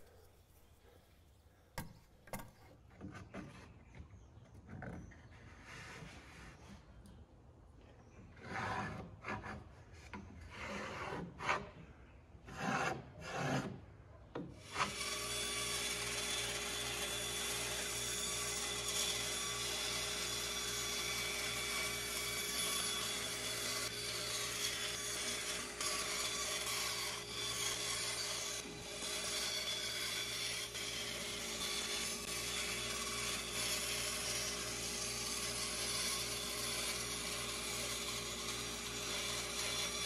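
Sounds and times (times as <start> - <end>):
bandsaw cutting wood: 14.6 - 40.0.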